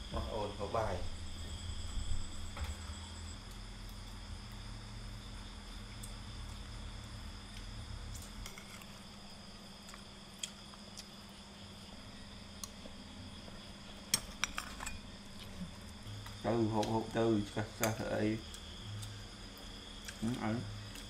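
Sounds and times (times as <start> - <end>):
low hum: 0.0 - 9.6
crickets chirring: 0.0 - 21.0.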